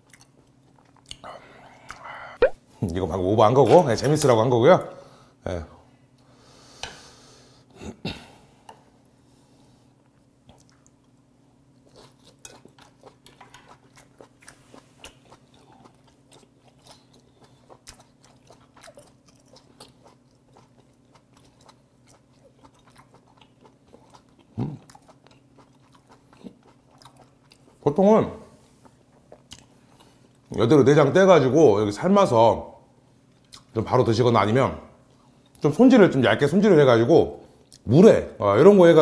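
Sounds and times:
wet chewing crunches: 11.8s - 27.8s.

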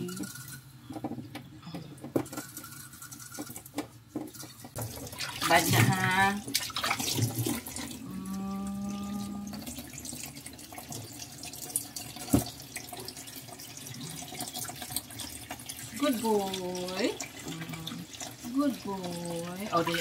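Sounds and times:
low steady tone: 8.0s - 9.8s.

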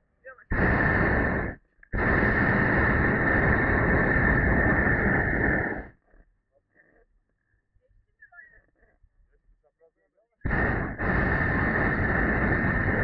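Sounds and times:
propane burner firing: 0.5s - 5.9s, 10.5s - 13.0s.

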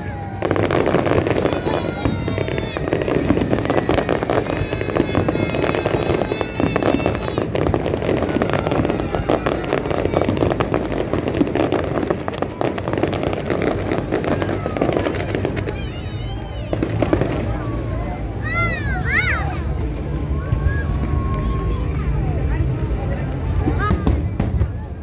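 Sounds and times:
fireworks bangs and crackles: 0.0s - 25.0s.

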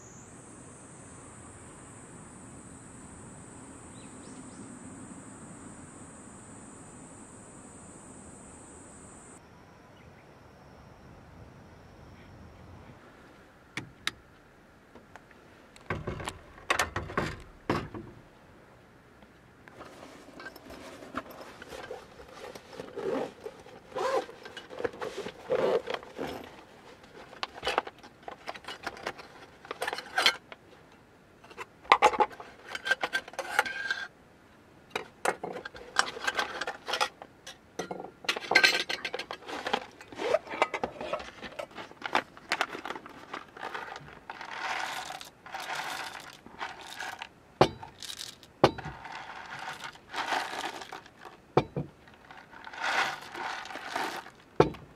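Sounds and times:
rustling handling: 19.7s - 30.9s, 38.3s - 54.9s
metal utensils clinking: 37.8s - 41.2s
coffee beans pouring into grinder: 44.4s - 47.2s, 49.1s - 51.0s, 52.6s - 54.4s.

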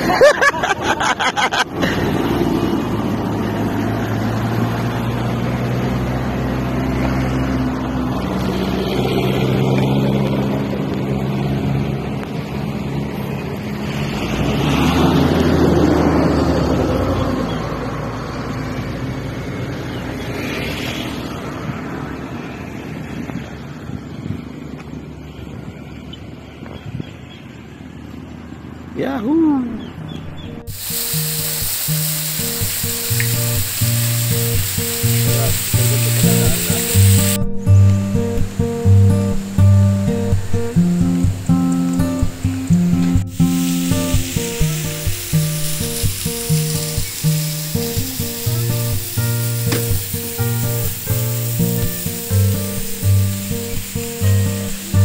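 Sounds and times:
vehicle passing: 0.0s - 26.6s, 27.4s - 55.0s
vehicle engine drone: 0.0s - 55.0s.

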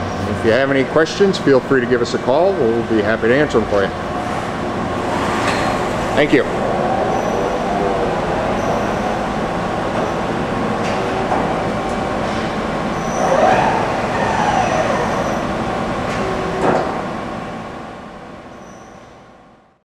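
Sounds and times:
machine hum with whine: 0.0s - 19.8s.

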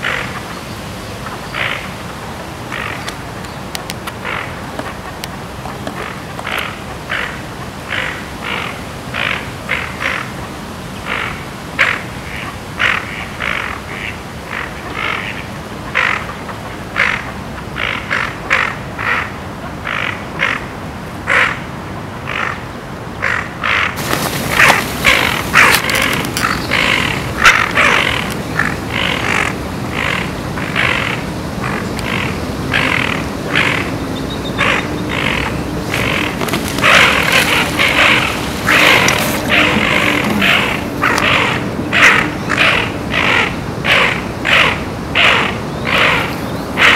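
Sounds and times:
duck quacking: 23.2s - 46.9s.

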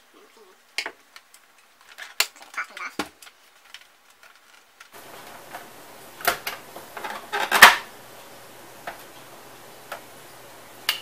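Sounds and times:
low steady hiss: 0.0s - 11.0s
plastic clatter: 0.8s - 5.7s, 6.3s - 7.9s.

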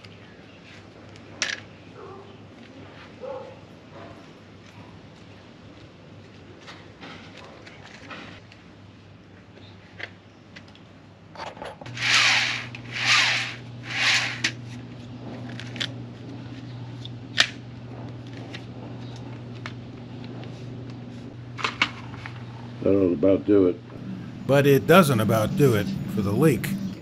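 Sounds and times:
rasping rubs: 11.9s - 14.6s.

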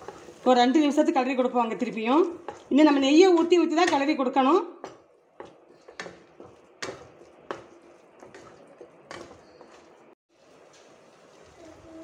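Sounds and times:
spatula stirring thick food: 0.0s - 11.4s
spatula knocking against pan: 2.3s - 9.9s.

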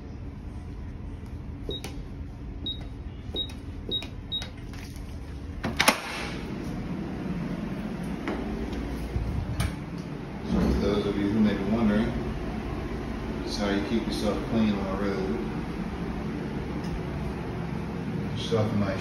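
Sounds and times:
door keypad beeps: 1.7s - 1.9s, 2.6s - 4.6s.

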